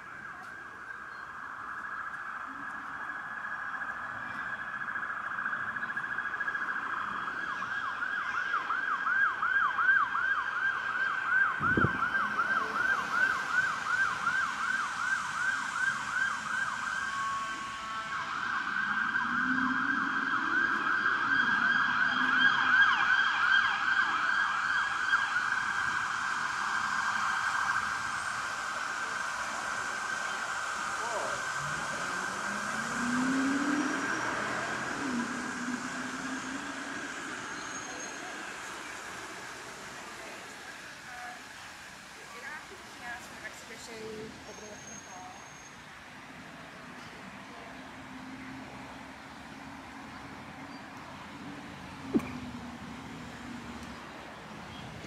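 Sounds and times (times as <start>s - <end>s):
emergency siren wailing and yelping: 0.0s - 55.0s
sharp knock: 52.1s - 52.4s.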